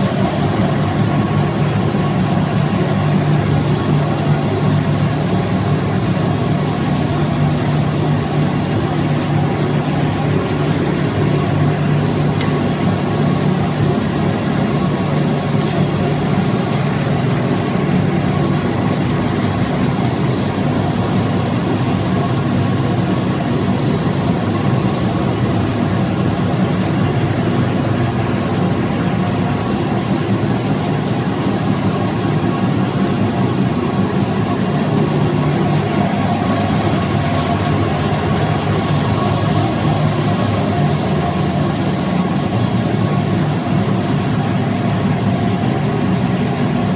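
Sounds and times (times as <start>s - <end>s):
machinery low hum: 0.0s - 46.9s
machinery whirring: 31.1s - 46.4s.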